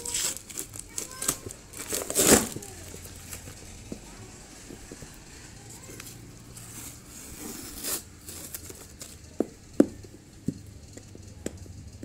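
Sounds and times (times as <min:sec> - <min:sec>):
cardboard box rustling: 0:00.0 - 0:03.6, 0:04.7 - 0:09.4.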